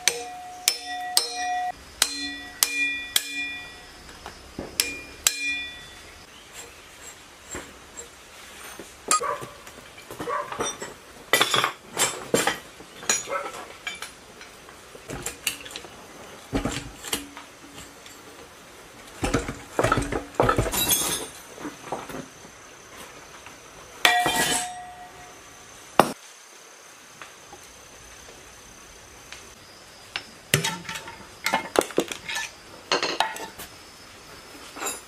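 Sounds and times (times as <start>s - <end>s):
hammer clanking on metal: 0.0s - 3.8s, 4.6s - 6.0s.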